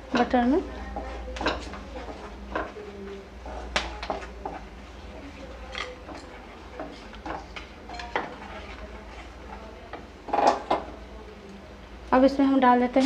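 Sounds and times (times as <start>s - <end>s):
wooden spatula scraping pan: 8.0s - 9.6s.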